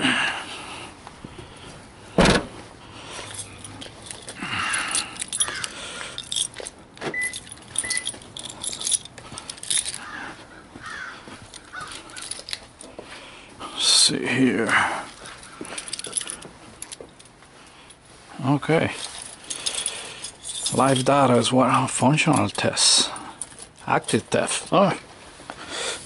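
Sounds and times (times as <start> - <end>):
liftgate slamming shut: 2.2 - 2.6
keys jangling: 3.1 - 10.2, 10.8 - 13.0, 14.7 - 18.0, 19.0 - 24.7
short beeps: 7.1 - 8.0.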